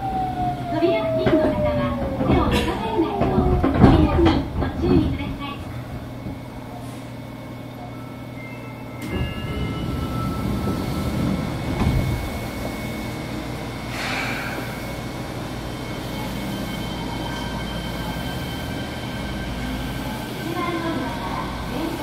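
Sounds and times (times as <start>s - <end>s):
steady train whine: 0.0s - 22.0s
train wheel rumble: 0.0s - 22.0s
air hiss: 13.8s - 15.5s.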